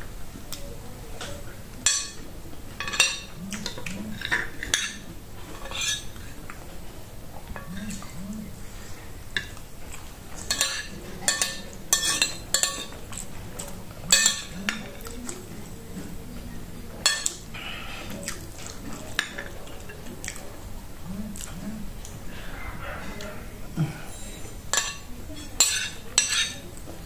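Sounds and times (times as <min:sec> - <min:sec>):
chewing: 0:00.4 - 0:27.0
spoon clinking on ceramic plate: 0:01.9 - 0:02.2, 0:02.8 - 0:06.1, 0:10.4 - 0:13.0, 0:14.1 - 0:14.9, 0:17.0 - 0:17.4, 0:24.1 - 0:26.7.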